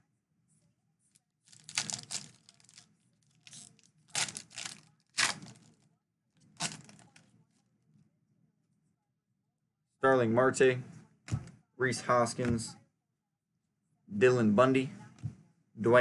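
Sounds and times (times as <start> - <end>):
foil wrapper tearing and crinkling: 1.5 - 5.7, 6.6 - 7.2.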